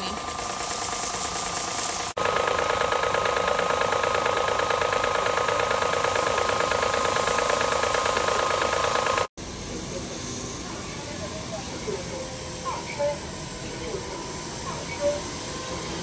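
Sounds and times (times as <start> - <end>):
pressure washer motor and pump: 0.0 - 12.6, 13.2 - 16.0
water-spray truck mechanical drone: 0.0 - 16.0.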